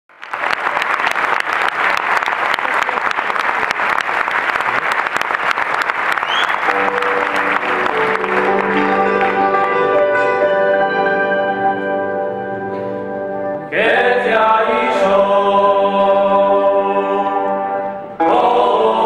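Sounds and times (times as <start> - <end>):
audience applauding: 0.1 - 10.4
folk string band playing: 6.7 - 13.7, 17.5 - 19.0.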